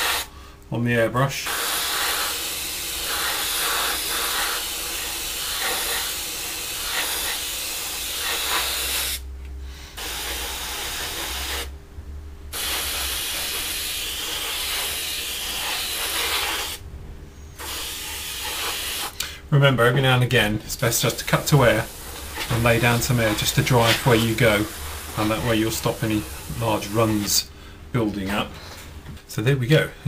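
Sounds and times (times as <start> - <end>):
airbrush spraying hiss: 0.0 - 0.3, 1.4 - 11.7, 12.5 - 16.8, 17.5 - 19.2, 21.0 - 27.5.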